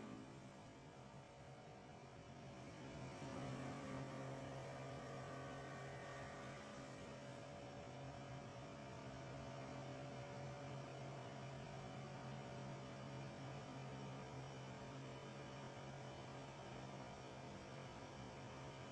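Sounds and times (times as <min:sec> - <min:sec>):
lathe motor hum: 0:02.4 - 0:16.8.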